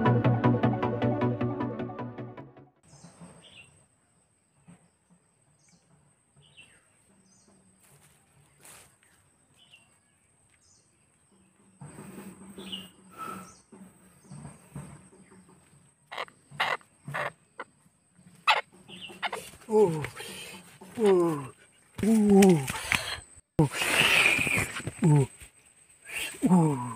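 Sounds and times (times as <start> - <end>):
small birds chirping: 2.8 - 26.9.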